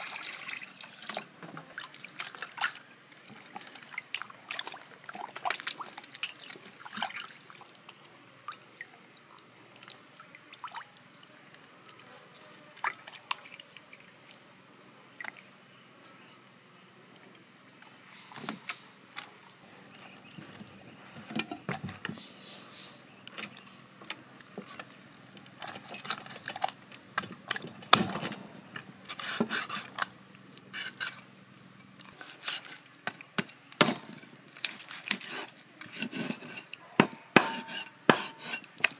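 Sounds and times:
water splashing and dripping: 0.0 - 11.8, 12.8 - 14.5, 15.2 - 15.6.

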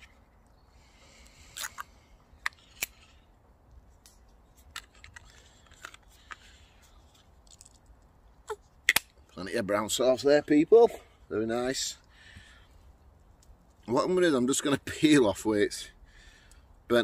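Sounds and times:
plastic bottle cap clicks and crinkles: 4.1 - 8.1.

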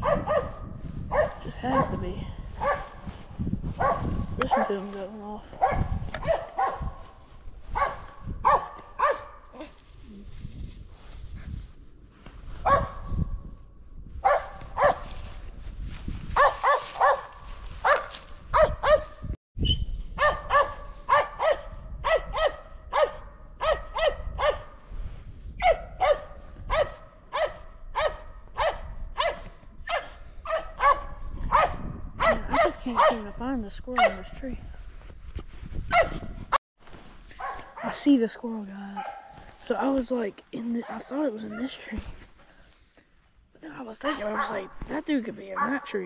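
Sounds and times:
dog barking: 0.0 - 2.0, 2.6 - 3.1, 3.8 - 4.8, 5.6 - 7.0, 7.7 - 9.4, 12.6 - 13.1, 14.2 - 15.1, 16.4 - 19.2, 20.2 - 24.8, 25.6 - 33.3, 34.0 - 34.4, 35.9 - 36.4, 37.4 - 38.0, 39.0 - 39.4, 40.8 - 41.9, 44.0 - 44.7, 45.5 - 45.9.

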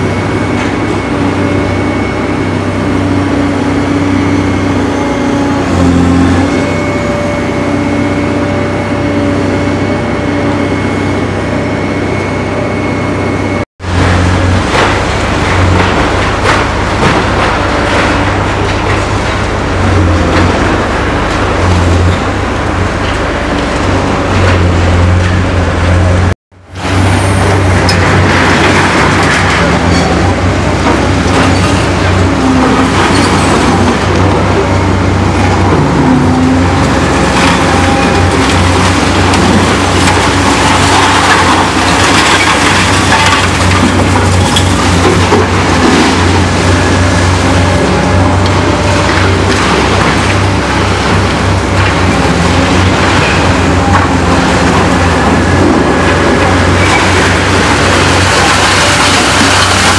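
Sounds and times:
excavator diesel engine working: 0.0 - 59.9
concrete crunching and clattering: 35.4 - 59.9.

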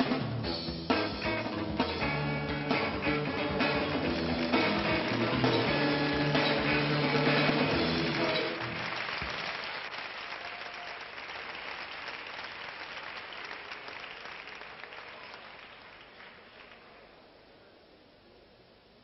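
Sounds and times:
band music: 0.0 - 9.3
audience applauding: 3.2 - 17.2.

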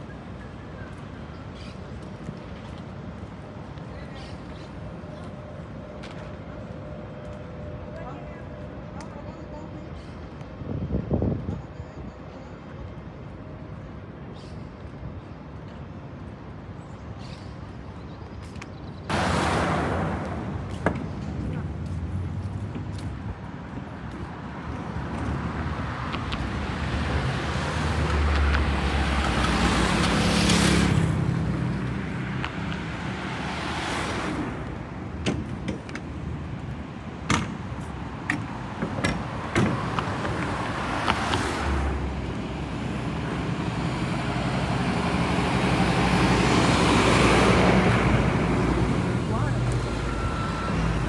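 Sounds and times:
bus engine: 18.7 - 51.0
cars driving past: 19.1 - 51.0.

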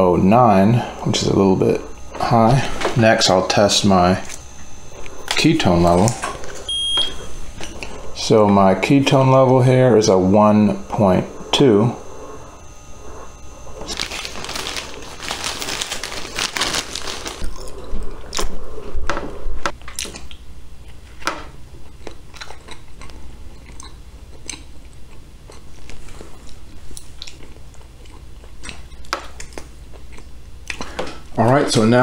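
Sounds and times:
dense rustling: 13.8 - 17.4
person chewing bread: 13.8 - 18.6, 19.8 - 31.0.

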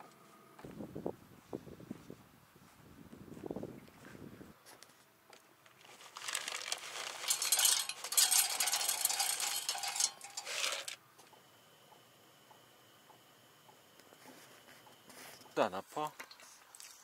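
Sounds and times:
pellets rattling on steel: 5.8 - 11.0.

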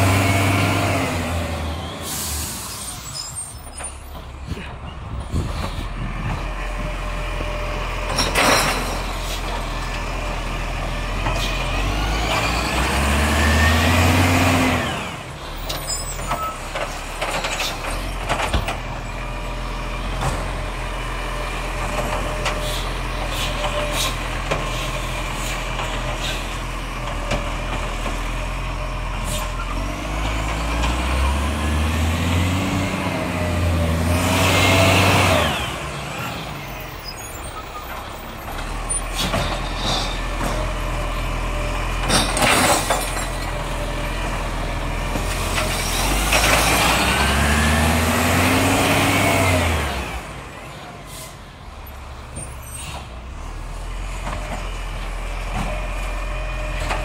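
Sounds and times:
garbage truck diesel engine: 0.0 - 57.0
air brake hiss: 2.0 - 3.5, 51.0 - 51.4.

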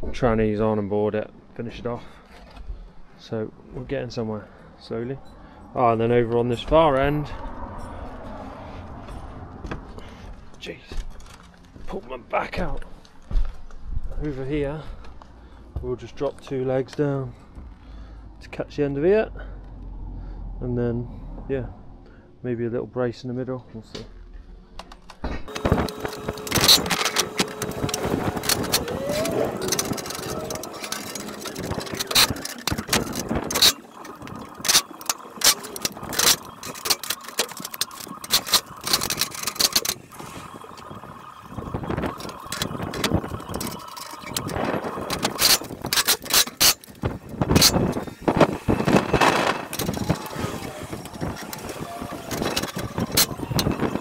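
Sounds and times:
steady rumble: 23.6 - 37.1
metal tubes knocking and clanking: 25.5 - 54.0
steady hum: 25.5 - 54.0.

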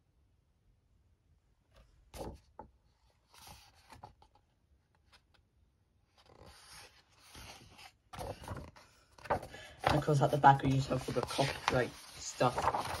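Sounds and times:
book pages rustling: 1.7 - 13.0.

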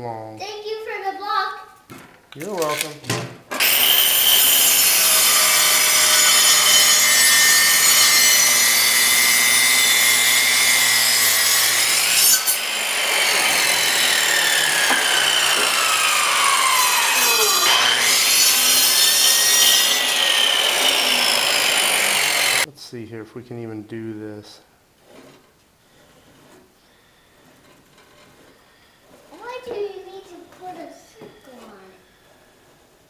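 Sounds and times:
electric miter saw cutting wood: 3.6 - 22.7.

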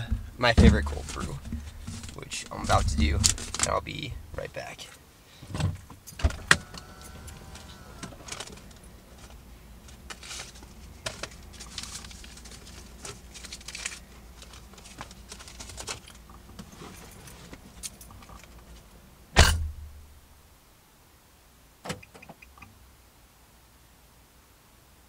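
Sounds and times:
person climbing out of car: 0.0 - 4.5, 5.4 - 18.9
low steady hum: 0.0 - 25.0.

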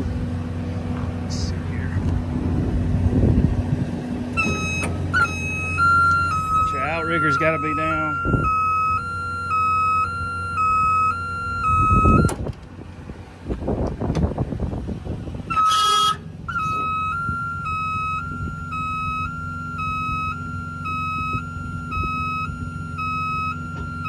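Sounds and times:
diesel engine idling: 0.0 - 24.0
single loud beep: 4.4 - 12.4
two-tone warning alarm beeping: 4.4 - 12.4, 15.5 - 24.0.

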